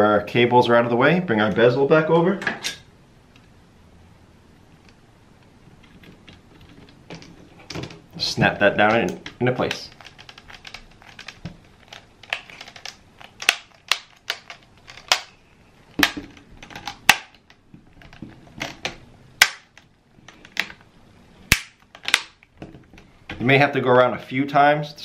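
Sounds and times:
plastic clips snapping: 8.8 - 15.4, 16.0 - 20.8, 21.5 - 22.5.

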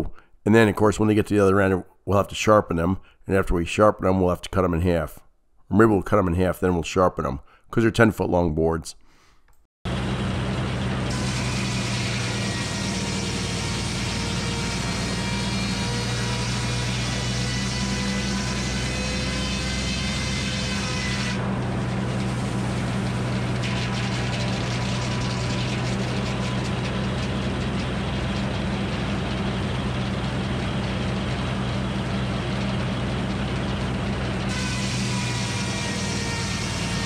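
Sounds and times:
low machine hum: 9.9 - 37.0
saw blade cutting wood: 11.1 - 29.7, 34.4 - 37.0.

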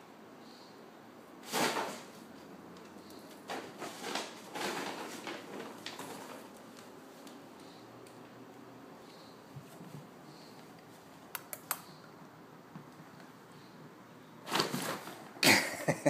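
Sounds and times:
paper bag rustling: 1.4 - 2.2, 3.3 - 7.4, 14.5 - 15.3.

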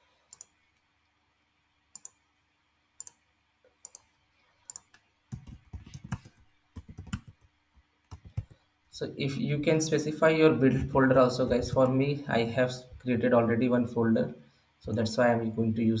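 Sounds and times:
computer mouse clicks: 0.3 - 0.9, 1.9 - 2.2, 3.0 - 3.2, 3.8 - 4.1, 4.7 - 7.5, 8.1 - 8.6
keyboard keystrokes: 4.7 - 7.5.

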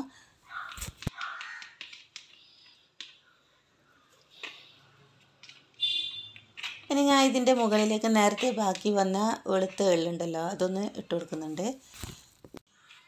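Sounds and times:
spoon scraping in plastic bowl: 6.4 - 11.1.

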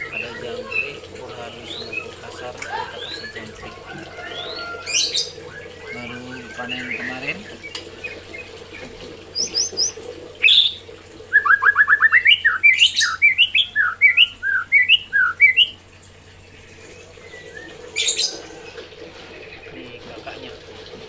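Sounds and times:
bird rasping calls: 0.0 - 15.8
bird whistling song: 9.3 - 15.8, 16.9 - 18.5.

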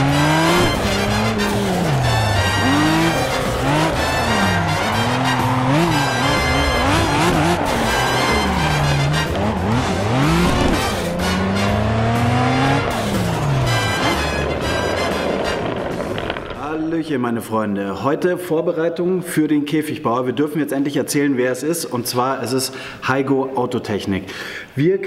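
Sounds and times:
racing car engine revving: 0.0 - 16.2
background music with a beat: 0.3 - 15.8.

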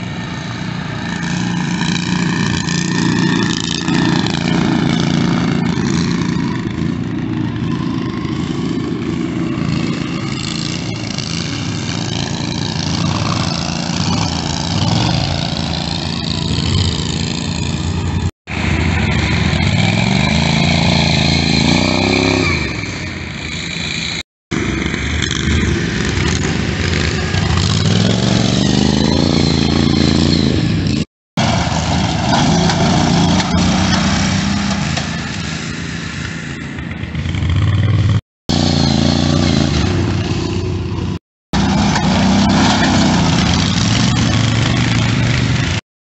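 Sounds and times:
lawn mower engines revving: 0.0 - 45.8.

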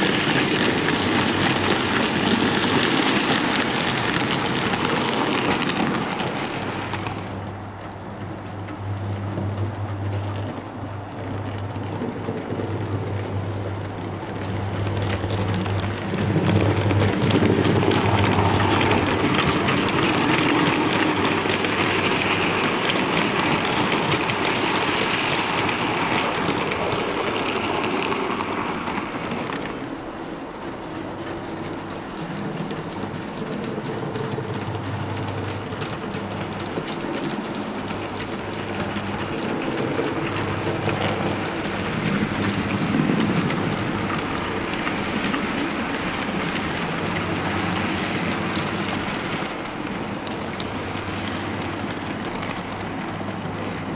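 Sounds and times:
model train wheels clattering: 0.0 - 53.9
low motor hum: 7.3 - 21.4.

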